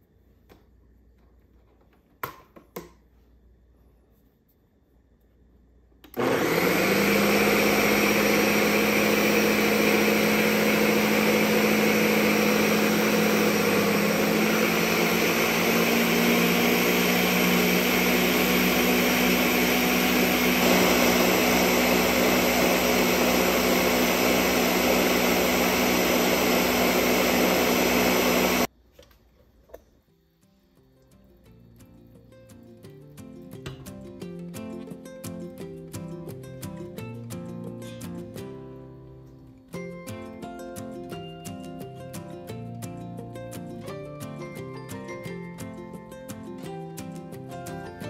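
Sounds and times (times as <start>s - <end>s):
blender motor running: 6.2s - 28.7s.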